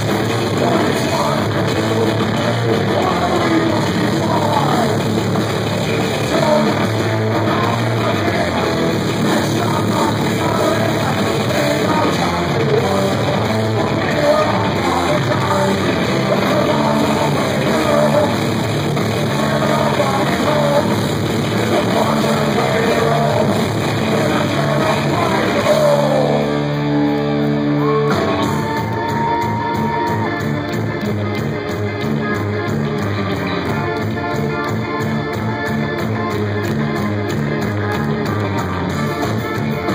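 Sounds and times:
live rock band playing: 0.0 - 39.9
person singing: 0.0 - 39.9.

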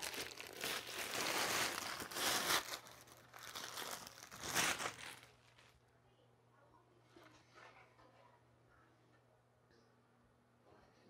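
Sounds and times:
plastic wrap tearing and crinkling: 0.0 - 5.8.

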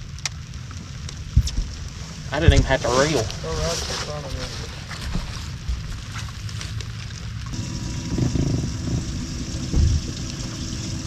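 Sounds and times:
wind rumbling on microphone: 0.0 - 11.0
electric motor humming: 7.6 - 11.0
dull thump: 9.7 - 10.1.

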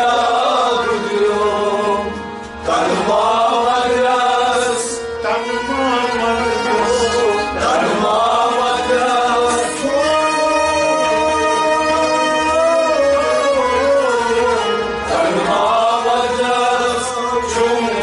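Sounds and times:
harmonium: 0.0 - 18.0
men singing devotional song: 0.0 - 18.0.

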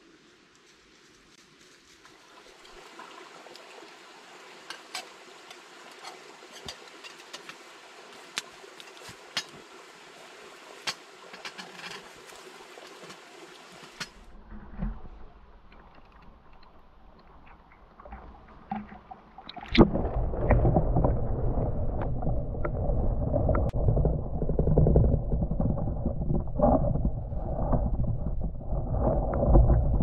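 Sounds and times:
campfire crackling and popping: 4.7 - 9.6
dull low rumble: 19.8 - 30.0.

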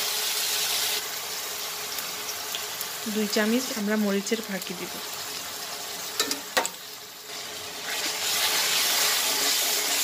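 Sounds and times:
onions sizzling in a pan: 0.0 - 10.0
spoon knocking against pan: 6.2 - 6.8.

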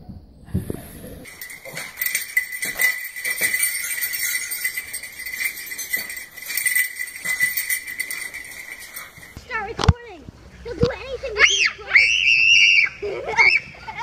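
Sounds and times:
small bells shaking on a strand: 1.2 - 9.4.

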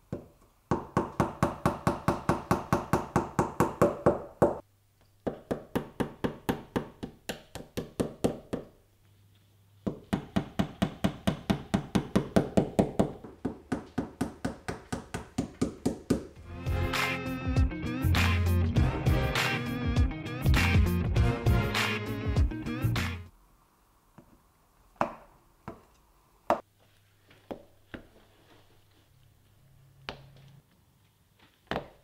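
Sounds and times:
hammer tapping a nail: 9.9 - 16.3.

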